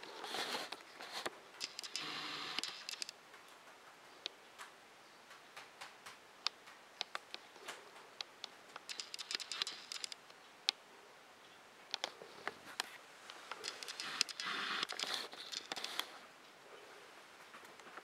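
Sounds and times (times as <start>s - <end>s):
bird feet tapping on paper: 1.1s - 10.2s, 13.5s - 16.1s
paper rustling: 12.0s - 16.2s.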